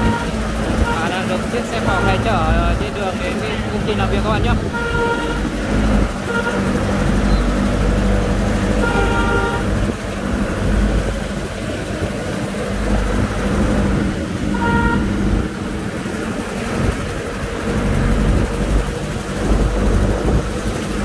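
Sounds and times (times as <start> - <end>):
vehicle horn honking: 0.0 - 2.6, 3.3 - 7.6, 8.7 - 10.0, 14.5 - 15.3
truck engine rumbling: 0.0 - 21.0.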